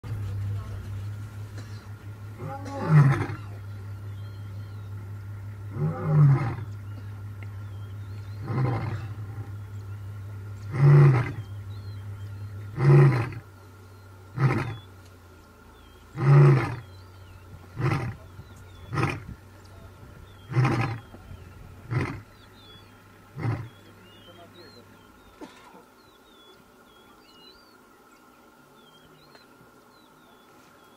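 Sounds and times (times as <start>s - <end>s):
lion roaring: 2.3s - 3.6s, 5.7s - 6.8s, 8.3s - 9.6s, 10.6s - 11.5s, 12.6s - 13.4s, 14.3s - 14.9s, 16.2s - 16.9s, 17.7s - 19.3s, 20.4s - 21.2s, 21.8s - 22.3s, 23.3s - 23.8s.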